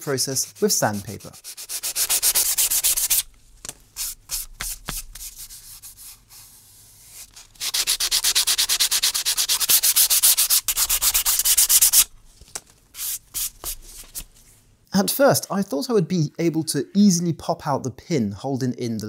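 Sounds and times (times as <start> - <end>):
sandpaper rubbing on wood: 0.0 - 3.3, 4.0 - 12.1.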